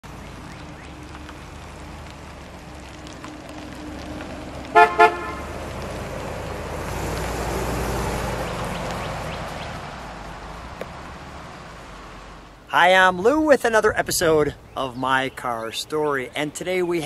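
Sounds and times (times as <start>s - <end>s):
car horn toots: 4.7s - 5.5s.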